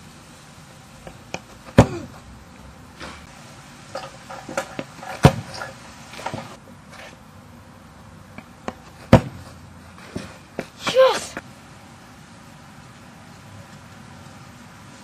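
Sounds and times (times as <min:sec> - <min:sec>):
football kicked hard: 0:01.7 - 0:02.1, 0:09.1 - 0:09.5.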